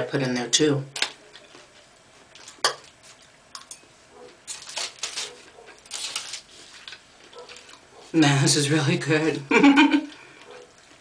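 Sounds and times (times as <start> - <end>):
chewing: 1.3 - 8.1, 10.1 - 11.0.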